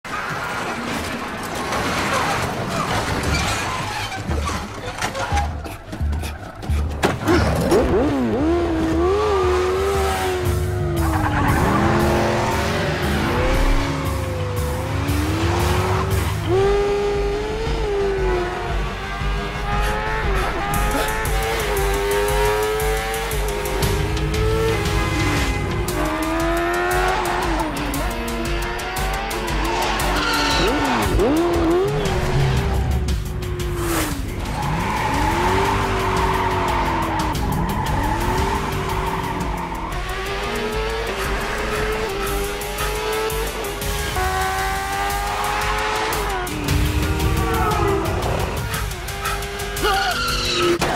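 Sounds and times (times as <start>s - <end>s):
tire squeal: 2.0s - 7.9s, 11.0s - 13.8s, 29.6s - 31.4s, 33.9s - 40.1s, 41.1s - 43.4s, 47.3s - 50.9s
tyre squeal: 2.1s - 7.6s, 48.7s - 50.8s
car engine revving: 5.5s - 50.9s
music with steady beat: 10.1s - 49.9s.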